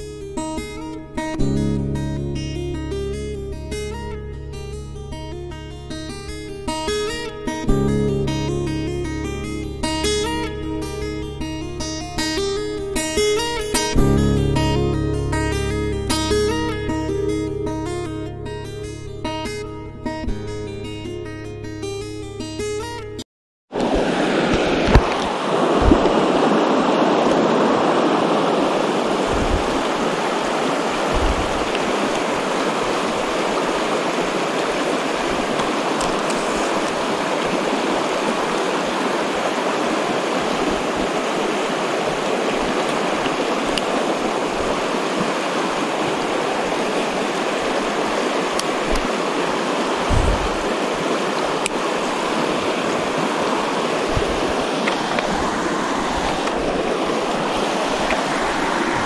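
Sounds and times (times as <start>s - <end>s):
creek water rushing: 0.0s - 59.0s
low thumps: 50.1s - 50.6s.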